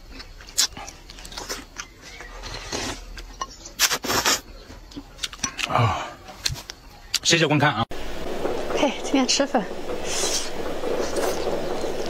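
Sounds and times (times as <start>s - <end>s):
person chewing meat: 0.0s - 2.2s
sucking slurps: 8.4s - 12.0s.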